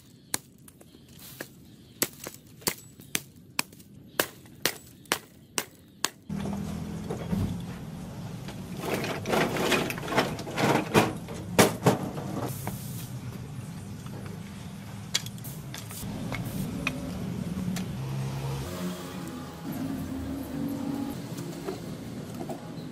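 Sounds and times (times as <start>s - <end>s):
firewood clattering and knocking: 8.8s - 12.5s.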